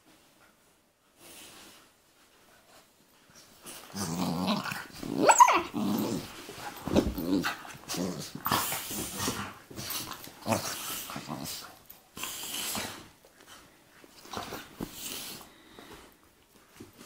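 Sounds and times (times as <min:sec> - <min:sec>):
dogs growling in play: 0:03.6 - 0:13.2
dog yelping: 0:05.2 - 0:05.8.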